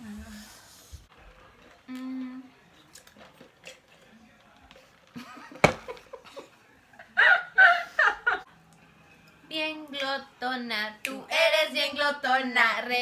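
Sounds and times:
women laughing: 5.2 - 8.5.

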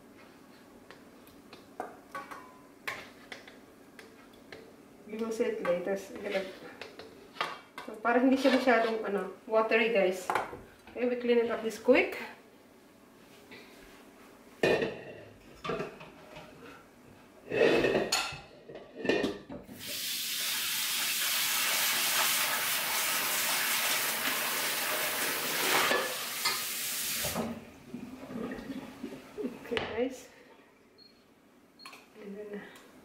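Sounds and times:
wok clanking: 1.8 - 4.7
running water hissing: 19.8 - 27.6.

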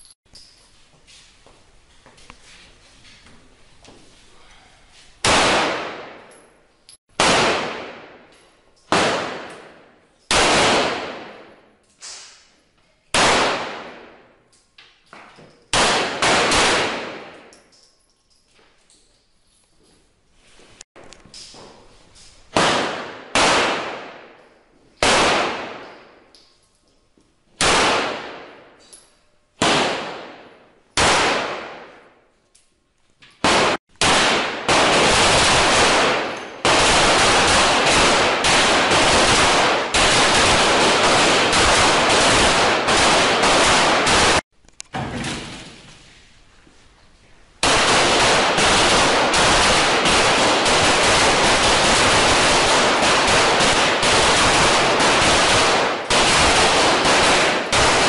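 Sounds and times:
pistol gunfire with echo: 5.2 - 6.3, 7.1 - 8.2, 8.9 - 11.6, 15.7 - 17.5, 22.6 - 24.4, 27.6 - 28.7, 29.6 - 32.1, 33.4 - 44.4, 47.6 - 58.0.

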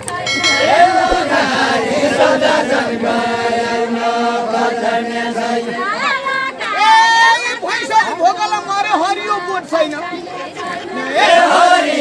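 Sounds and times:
men chanting in unison: 0.5 - 6.7, 8.9 - 12.0.

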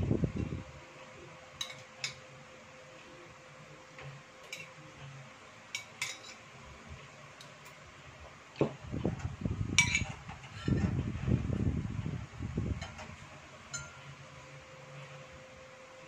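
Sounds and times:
cutlery clinking on plate: 1.6 - 2.2, 4.4 - 4.8, 5.8 - 6.4, 9.8 - 10.8
spoon clinking on ceramic bowl: 1.6 - 2.2, 5.8 - 6.4, 9.8 - 10.1.

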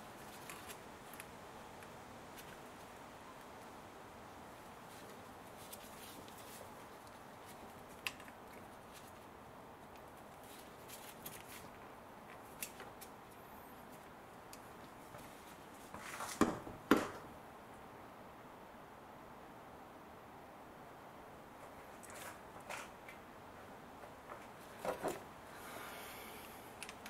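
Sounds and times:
sharp knocks: 16.4 - 17.3
hand tools and parts clicking: 26.4 - 27.0.

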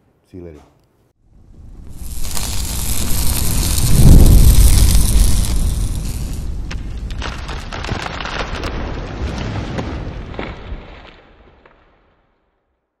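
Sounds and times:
low rumble with crackles: 1.3 - 11.7.

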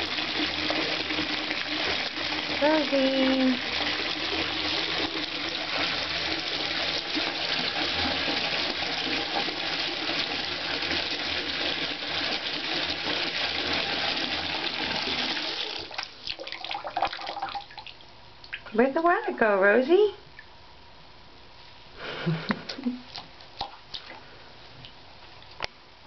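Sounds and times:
faucet water pouring into tub: 0.0 - 18.7.

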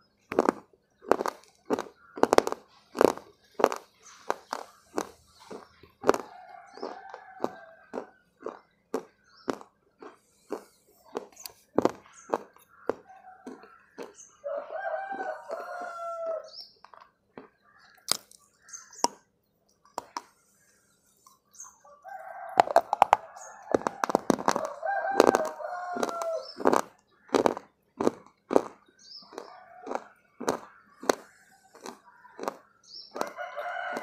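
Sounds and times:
crunching and chewing snack bar: 0.1 - 20.4, 22.1 - 34.0
rooster crowing: 6.2 - 8.1, 14.4 - 16.5, 21.9 - 26.5, 29.5 - 30.1, 33.2 - 34.0.

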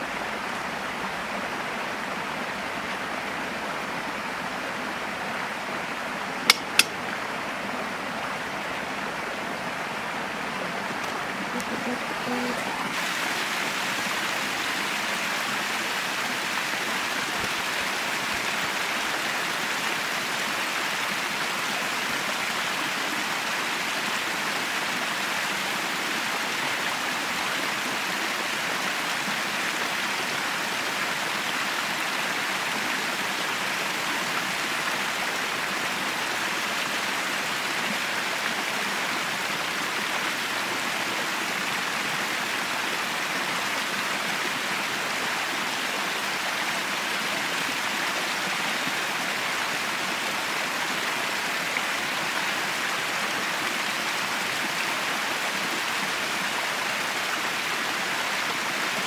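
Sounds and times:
stream cascading over rocks: 0.0 - 59.0.

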